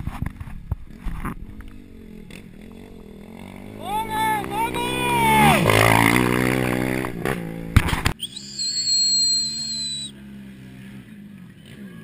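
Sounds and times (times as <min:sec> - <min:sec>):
rally car engine passing by: 0:01.6 - 0:07.9
high steady whistling tone: 0:08.2 - 0:10.1.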